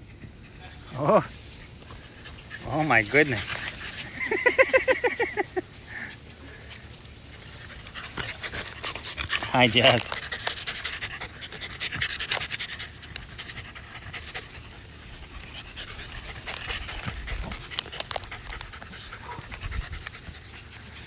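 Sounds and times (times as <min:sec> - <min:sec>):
dog panting: 0:00.0 - 0:21.0.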